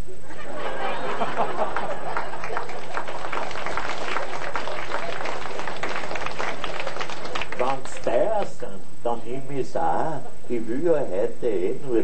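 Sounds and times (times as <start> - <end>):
audience laughing: 0.1 - 5.9
audience applauding: 0.9 - 8.5.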